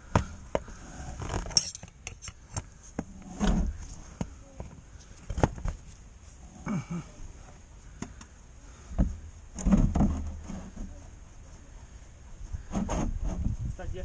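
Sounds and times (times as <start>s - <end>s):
metal hand tools clinking: 1.5s - 2.4s.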